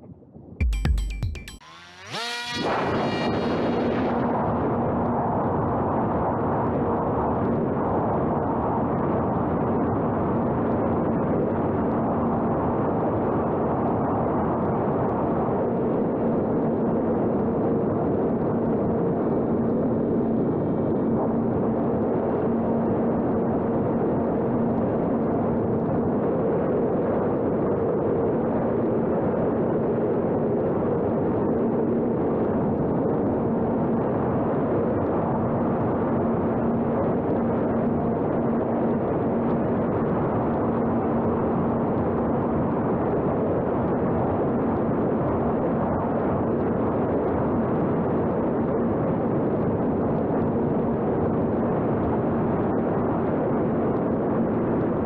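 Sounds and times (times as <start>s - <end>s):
electric model airplane motor hum: 1.6s - 4.6s
wind noise: 2.6s - 55.0s.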